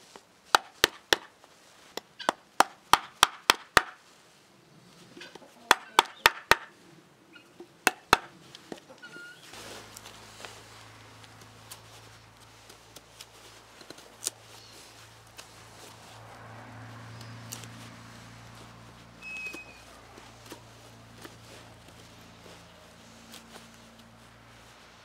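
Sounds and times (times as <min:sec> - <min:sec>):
knife carving a stick: 0:00.5 - 0:01.3, 0:05.7 - 0:06.8, 0:07.6 - 0:08.8, 0:11.2 - 0:16.0, 0:17.1 - 0:18.0.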